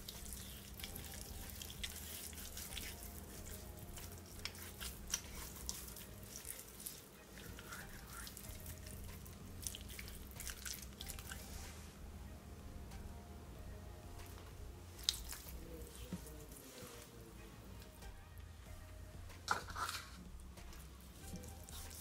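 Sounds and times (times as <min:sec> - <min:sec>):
hands rubbing wet fish: 0:00.0 - 0:11.9, 0:15.0 - 0:17.1, 0:21.2 - 0:22.0
low steady hum: 0:00.0 - 0:22.0.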